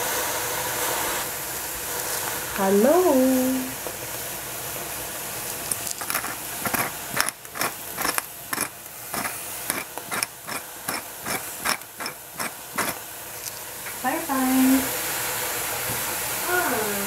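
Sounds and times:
pepper mill ratcheting clicks: 6.0s - 13.0s.

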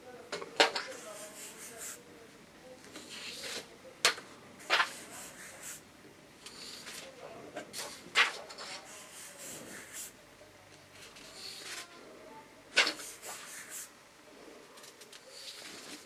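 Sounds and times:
pen rubbing on paper: 0.9s - 2.0s, 3.0s - 3.6s, 4.6s - 5.8s, 8.5s - 10.1s, 12.9s - 13.9s.

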